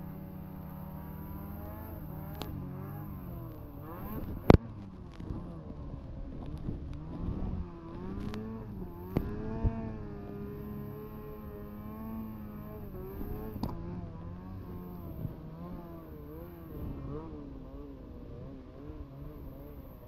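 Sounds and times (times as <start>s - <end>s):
snowmobile engine at high revs: 0.0s - 20.0s.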